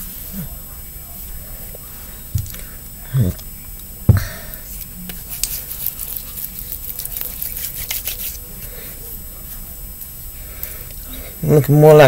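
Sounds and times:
hands rubbing through hair: 5.3s - 8.4s.

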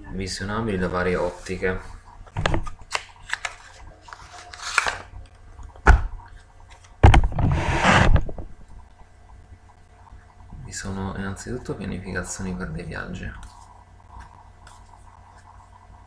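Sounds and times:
microphone handling clicks: 7.0s - 8.6s.

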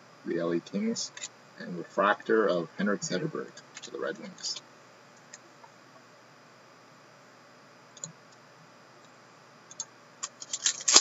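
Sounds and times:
foil card pack crinkling: 10.2s - 11.0s.

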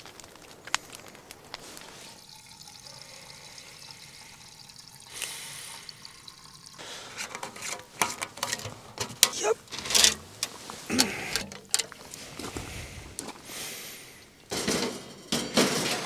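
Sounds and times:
fire crackling: 0.0s - 16.0s
fire hissing: 0.2s - 7.2s, 9.3s - 14.5s.

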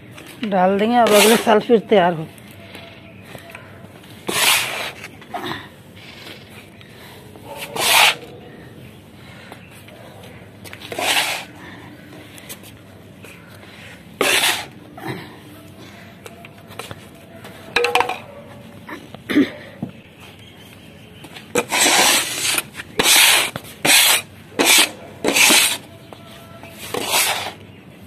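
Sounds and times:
soil scraping on hard floor: 0.8s - 1.8s, 4.2s - 5.2s, 7.5s - 8.3s, 10.7s - 11.6s, 14.2s - 14.8s, 21.5s - 25.9s, 26.7s - 27.7s.

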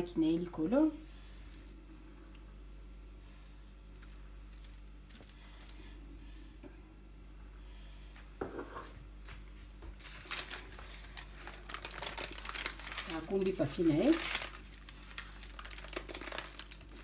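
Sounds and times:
crinkling and rustling: 3.9s - 5.9s, 9.2s - 17.0s.

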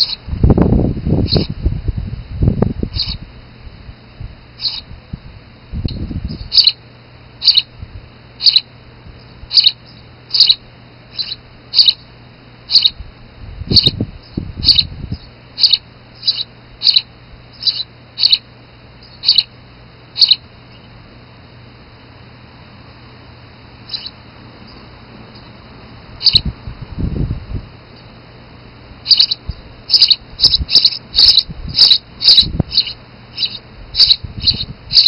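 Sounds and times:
sparrow chirping: 0.0s - 0.2s, 1.2s - 1.6s, 2.9s - 3.2s, 4.6s - 4.9s, 5.9s - 6.8s, 7.4s - 7.7s, 8.4s - 8.7s, 9.5s - 12.1s, 12.7s - 13.0s, 13.7s - 21.0s, 23.8s - 25.6s, 26.2s - 26.5s, 29.0s - 35.0s.

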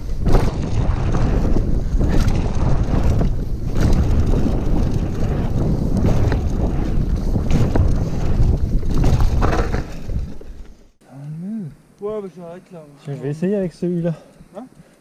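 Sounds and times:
wind rushing over microphone: 0.0s - 10.6s
bike knocks and rattles: 0.0s - 10.9s.

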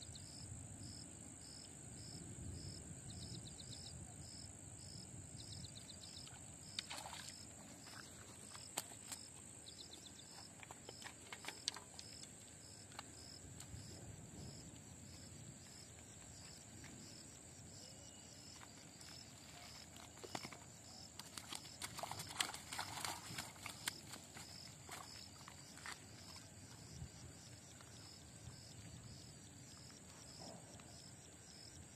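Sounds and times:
insect chirping: 0.0s - 31.9s
insects droning buzz: 0.0s - 31.9s
handling clicks and rustles: 10.3s - 13.1s.

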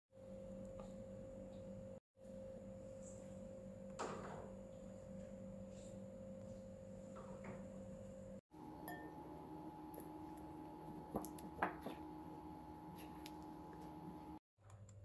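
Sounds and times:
spatula clinking glass bowl: 8.8s - 9.2s.

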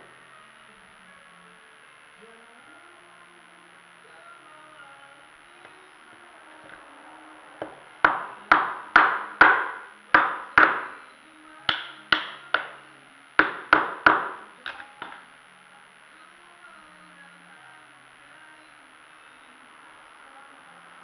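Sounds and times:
hammer knocking on wood: 7.6s - 10.9s, 13.4s - 14.4s.

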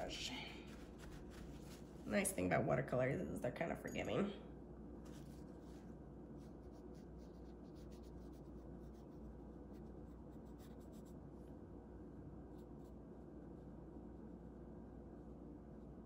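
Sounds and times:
low steady hum: 0.0s - 16.0s
brush stroking across paper: 0.6s - 2.2s, 5.0s - 11.5s.

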